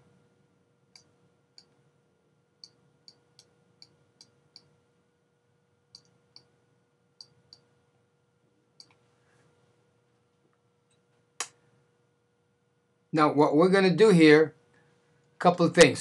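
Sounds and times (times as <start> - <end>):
faint electrical hum: 0.0 - 16.0
computer mouse clicks: 0.9 - 1.8, 2.6 - 4.8, 5.9 - 6.5, 7.2 - 7.7, 8.8 - 9.0.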